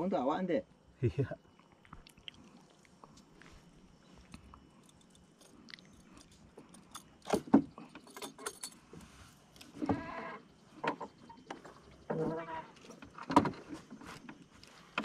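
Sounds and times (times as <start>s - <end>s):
metallic jingle: 8.0s - 8.9s.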